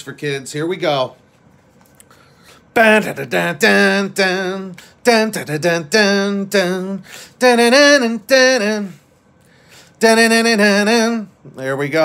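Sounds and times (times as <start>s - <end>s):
man's sing-song voice: 2.6s - 9.1s, 9.8s - 12.0s.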